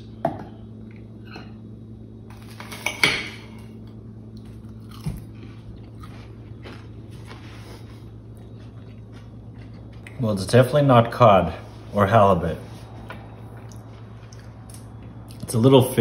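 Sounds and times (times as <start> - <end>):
steady low hum: 0.0 - 16.0
close-up chewing: 4.3 - 10.2.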